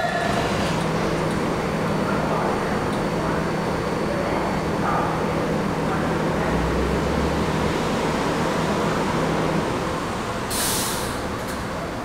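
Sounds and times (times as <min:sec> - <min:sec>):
subway train rushing noise: 0:00.0 - 0:12.0
short sharp hiss: 0:10.5 - 0:11.2.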